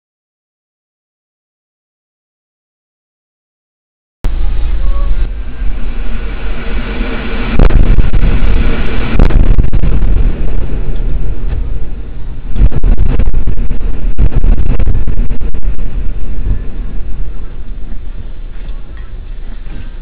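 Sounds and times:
loud explosion blast: 4.3s - 18.5s
cracking and rumbling: 4.3s - 20.0s.

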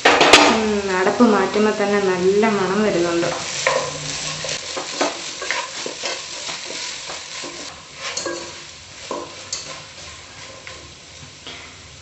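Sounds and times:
light sizzle of frying: 0.0s - 12.0s
wooden spatula scraping frying pan: 2.4s - 11.6s.

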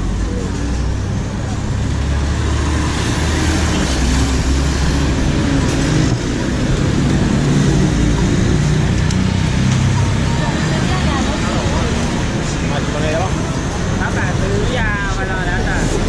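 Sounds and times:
road traffic engine rumble: 0.0s - 16.0s.

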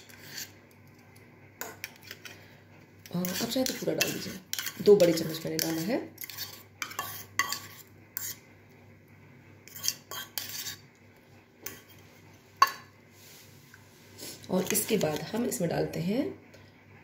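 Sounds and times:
metal spoon scraping steel bowl: 0.0s - 0.5s, 3.0s - 8.4s, 9.6s - 10.8s, 11.6s - 12.0s, 14.5s - 15.4s.

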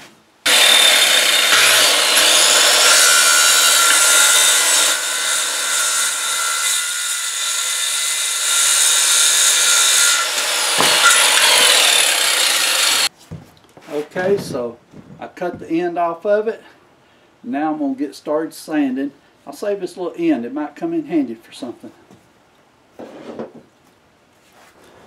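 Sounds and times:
circular saw cutting wood: 0.5s - 13.1s.

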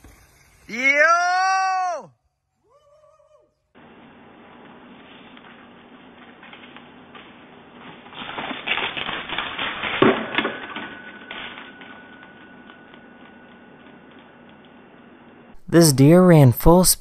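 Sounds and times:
faint steady whine: 3.4s - 16.9s.

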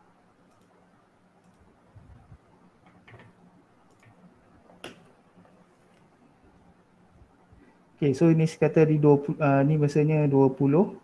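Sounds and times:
faint clicks and taps: 1.4s - 6.2s.

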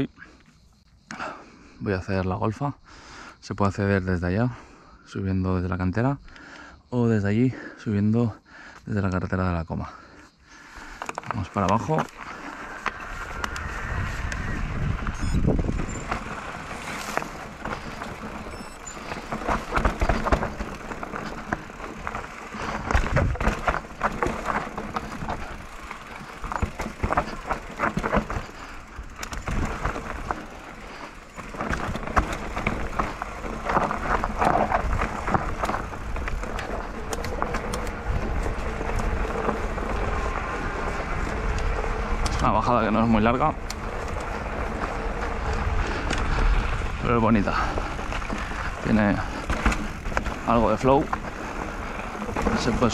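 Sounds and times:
bike tyres over bumpy ground: 0.0s - 52.9s
bike rattling and clattering: 10.6s - 52.9s.

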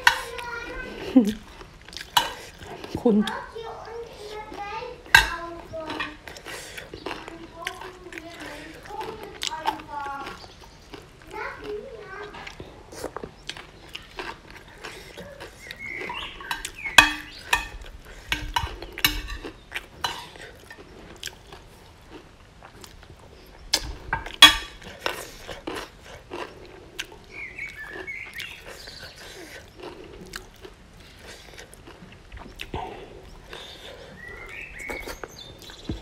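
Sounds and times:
chewing and lip smacking: 0.0s - 4.7s, 5.4s - 36.0s
metal spoon scraping ceramic plate: 16.1s - 19.4s, 24.2s - 24.8s.

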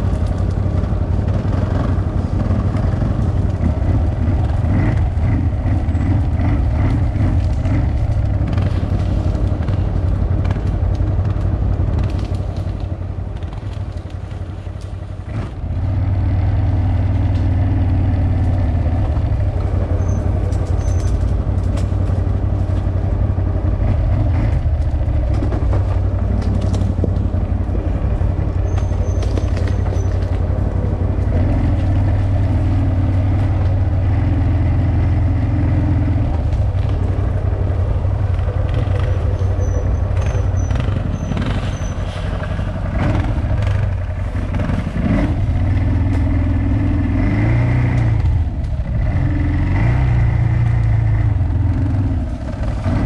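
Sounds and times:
atv engine revving: 0.0s - 53.0s.

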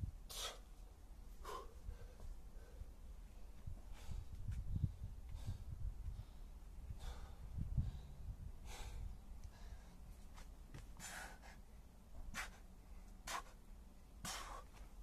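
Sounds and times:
man breathing hard: 0.3s - 10.1s, 10.9s - 13.6s, 14.2s - 15.0s.

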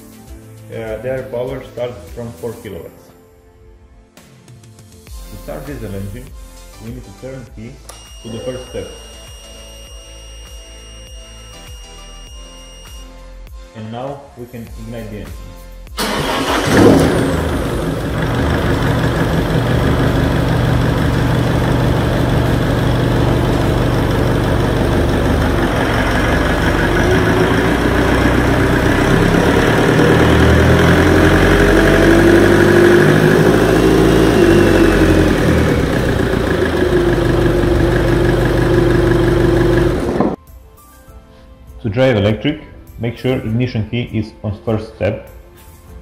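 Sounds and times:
diesel engine idling: 16.0s - 40.4s.

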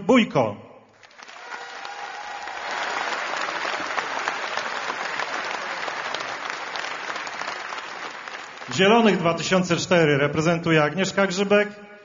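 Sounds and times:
audience applauding: 1.0s - 9.2s.

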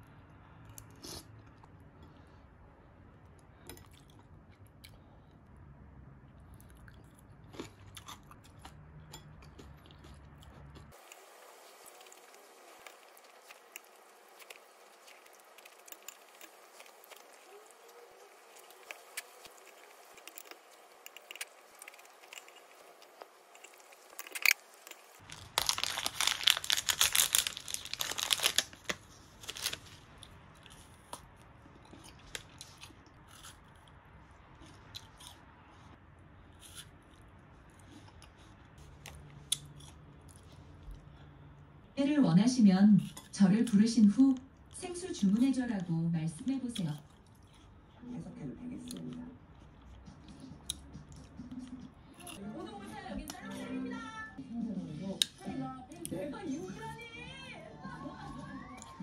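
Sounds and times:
plastic wrapper tearing and crinkling: 11.0s - 30.1s.

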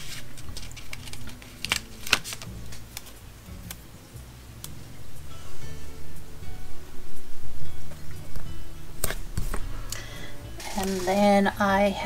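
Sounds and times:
sticker sheet clicks and crackles: 0.1s - 2.5s.

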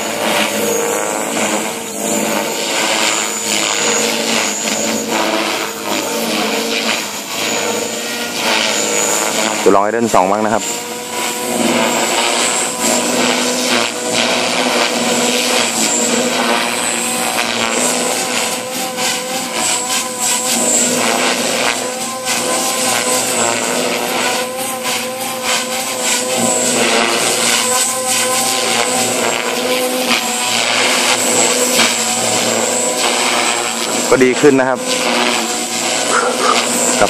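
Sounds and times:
rc helicopter motor whine: 0.0s - 37.0s.

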